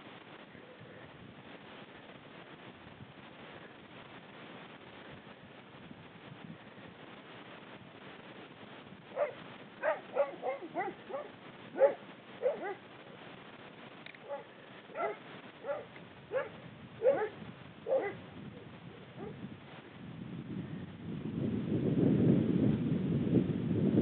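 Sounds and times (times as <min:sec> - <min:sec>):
dog barking: 0:09.2 - 0:12.8, 0:14.2 - 0:18.2, 0:19.2 - 0:19.4.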